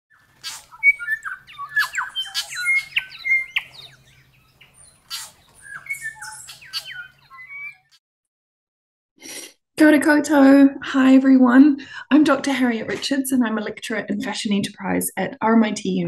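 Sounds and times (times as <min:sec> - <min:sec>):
bird singing: 0:00.1 - 0:08.0.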